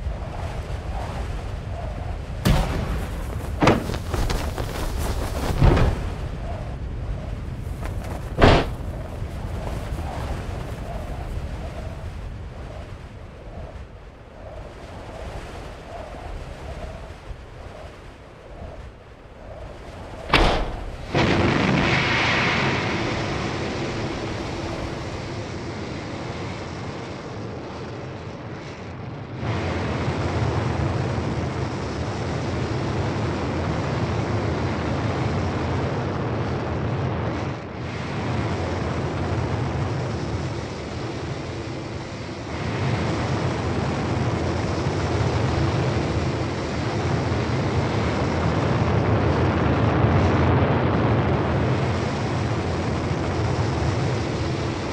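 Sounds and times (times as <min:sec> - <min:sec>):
rocket rumble: 0:00.0 - 0:54.9
sharp bang: 0:02.5 - 0:04.2, 0:08.4 - 0:08.8, 0:20.3 - 0:21.4.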